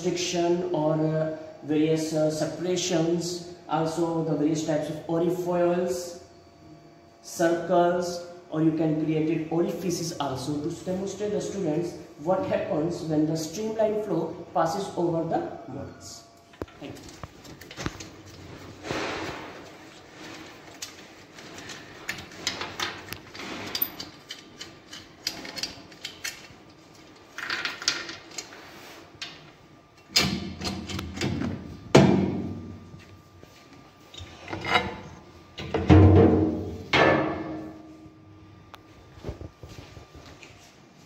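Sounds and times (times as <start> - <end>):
parts knocking and clattering: 34.2 - 37.6.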